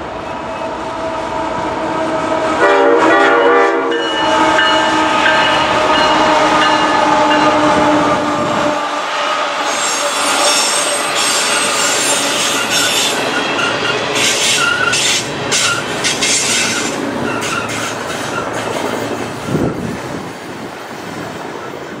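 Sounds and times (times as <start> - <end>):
train wheels squealing: 9.6 - 19.8.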